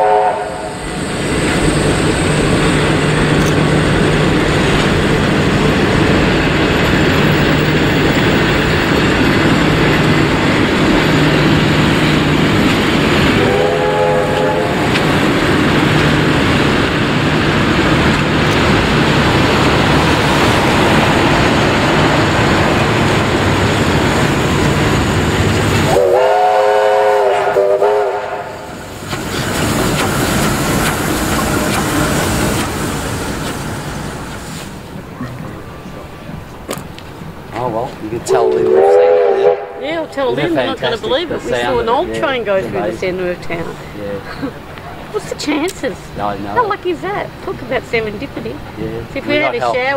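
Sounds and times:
steam locomotive chime whistle: 0.0s - 0.9s, 13.3s - 14.8s, 25.9s - 28.7s, 38.3s - 39.8s
train wheels clacking on rails: 0.0s - 26.1s, 28.7s - 35.6s.

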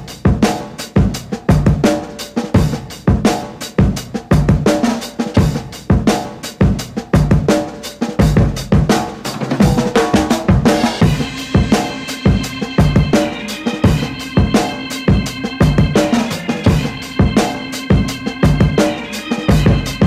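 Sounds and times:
drum kit steady beat: 0.0s - 20.0s
background music: 10.7s - 20.0s.

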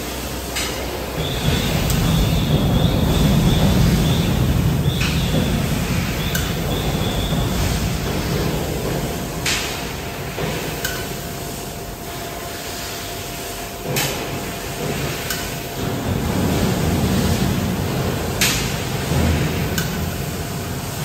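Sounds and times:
machine low mechanical rumble: 0.8s - 12.2s.

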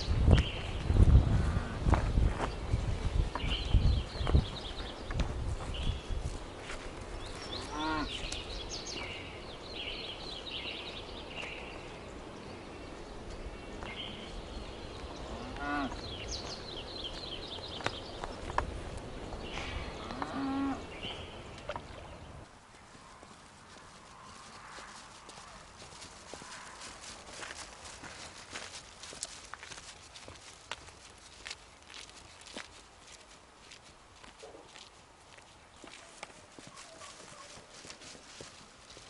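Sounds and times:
low wind rumble: 0.0s - 28.0s.

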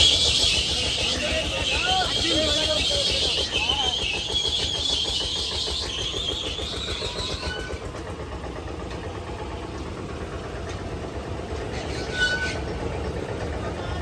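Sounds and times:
high squeak: 0.0s - 7.9s, 11.7s - 12.8s
fairground ride machinery droning: 0.0s - 14.0s.

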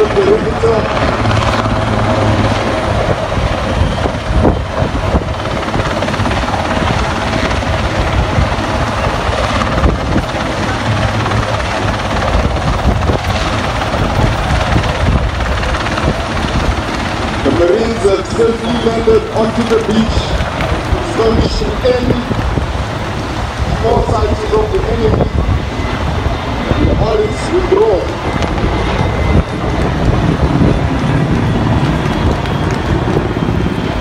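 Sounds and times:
helicopter hovering: 0.0s - 34.0s.

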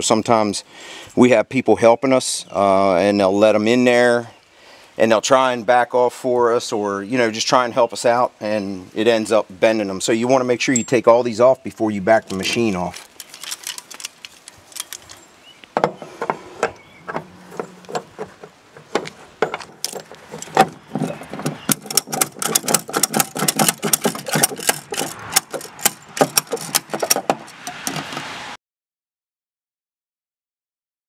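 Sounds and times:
metal clicks and clanks: 12.2s - 28.4s
ratchet strap clicking: 12.3s - 15.2s, 17.1s - 28.4s.

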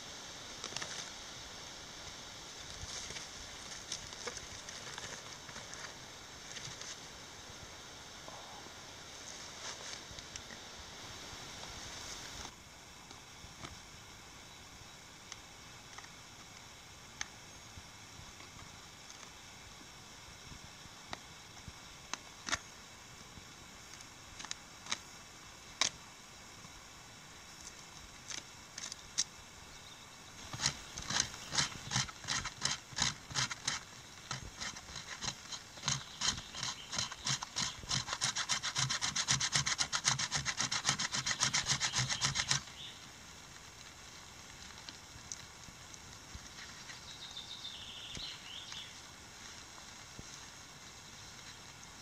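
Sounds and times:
knife scraping bark: 30.4s - 42.8s.

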